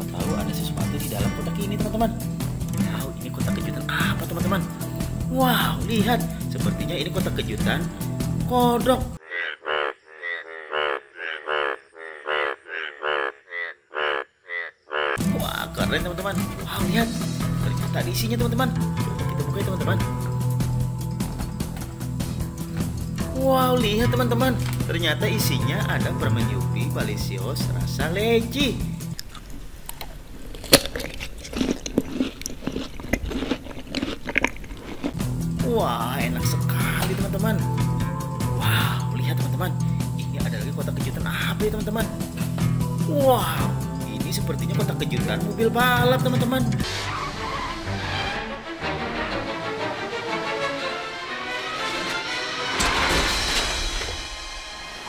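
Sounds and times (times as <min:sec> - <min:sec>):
bullfrog croaking: 0:09.2 - 0:15.6
person chewing fruit: 0:29.1 - 0:35.3.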